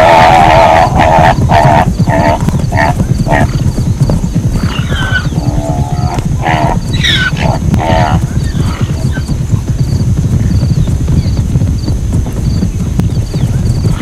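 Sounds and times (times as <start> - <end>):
low rumble: 0.0 - 14.0
zebra barking calls: 6.1 - 8.8.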